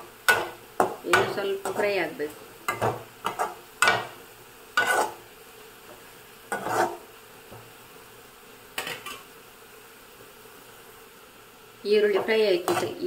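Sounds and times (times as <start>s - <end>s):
onions sizzling in oil: 0.0s - 13.0s
metal skimmer scraping a pan: 4.8s - 5.2s, 6.5s - 7.0s.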